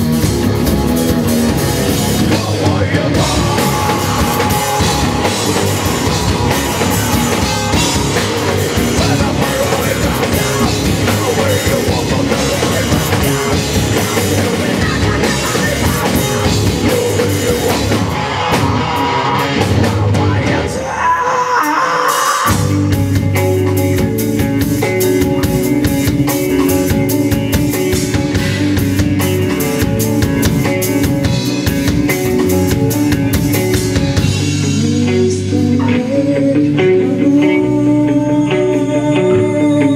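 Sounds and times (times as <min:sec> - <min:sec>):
live rock band playing loudly: 0:00.0 - 0:39.9.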